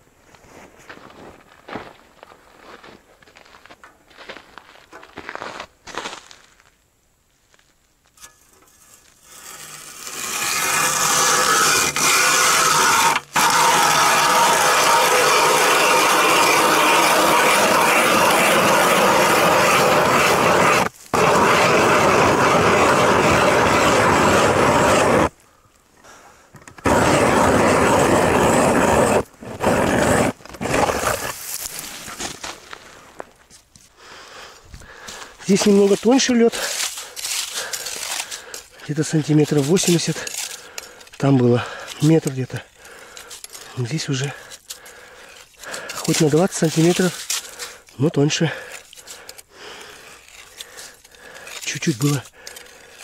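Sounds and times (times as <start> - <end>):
powered ice auger drilling: 9.3 - 25.3, 26.7 - 32.0, 35.5 - 53.0.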